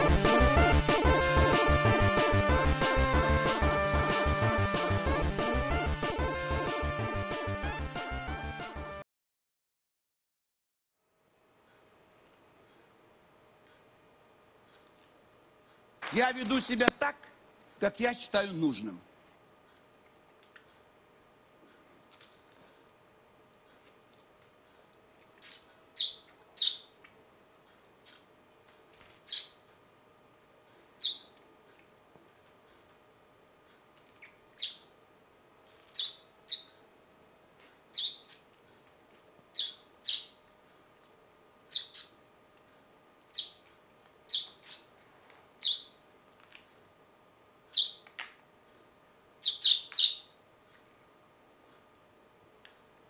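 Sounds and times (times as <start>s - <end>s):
sparrow chirping: 25.4s - 27.0s, 28.0s - 28.4s, 29.3s - 29.6s, 31.0s - 31.3s, 34.6s - 34.9s, 35.9s - 36.8s, 37.9s - 38.6s, 39.6s - 40.4s, 41.7s - 42.3s, 43.3s - 43.6s, 44.3s - 45.0s, 45.6s - 46.0s, 47.7s - 48.0s, 49.4s - 50.3s.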